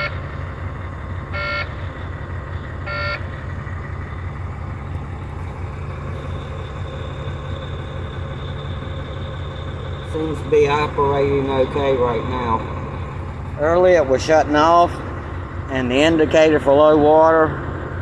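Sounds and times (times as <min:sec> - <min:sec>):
diesel truck engine idling: 0:00.0 - 0:18.0
dashboard warning chime beeps: 0:01.4 - 0:01.7, 0:02.9 - 0:03.2.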